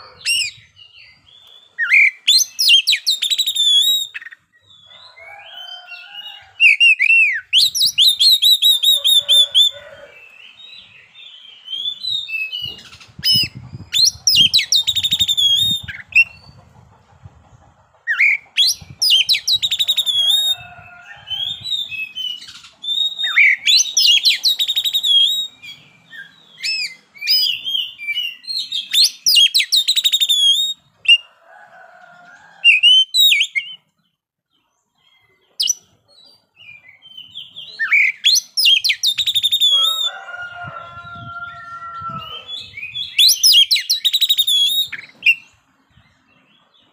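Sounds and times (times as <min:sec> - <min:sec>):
bird singing whistles and trills: 0:00.0 - 0:05.7, 0:06.6 - 0:16.4, 0:18.1 - 0:31.3, 0:32.7 - 0:33.9, 0:36.6 - 0:40.1, 0:42.1 - 0:45.5.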